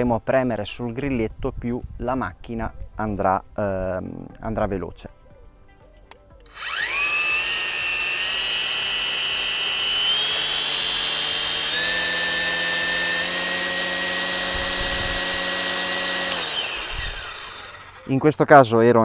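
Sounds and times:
string trimmer motor whine: 0:06.4 - 0:18.3.

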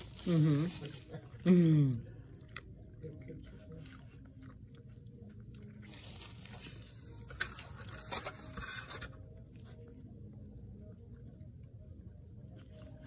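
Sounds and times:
person chewing food: 0:00.0 - 0:08.3.

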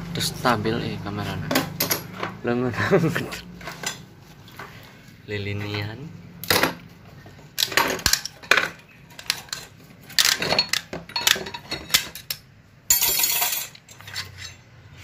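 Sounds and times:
metal clutch plates clinking: 0:07.6 - 0:14.8.

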